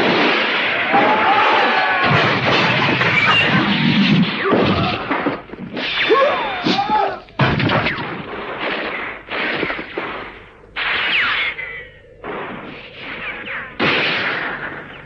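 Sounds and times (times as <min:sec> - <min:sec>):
cartoon gunfire: 0:00.0 - 0:15.0
cartoon impact hits: 0:07.4 - 0:11.6, 0:12.2 - 0:15.0.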